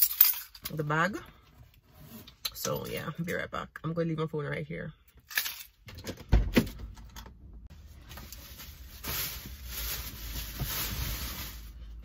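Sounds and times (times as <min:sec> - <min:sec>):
plastic bag rustling: 0:07.7 - 0:12.0.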